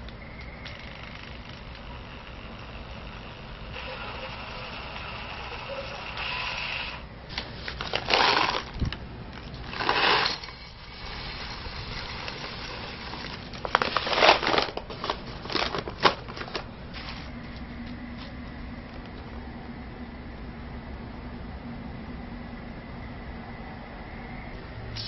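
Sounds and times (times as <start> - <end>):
single beans dropping: 9.4 - 10.7.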